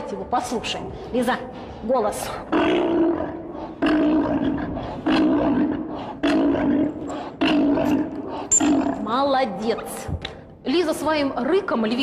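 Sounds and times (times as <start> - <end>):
sea lion roaring: 2.2 - 9.2.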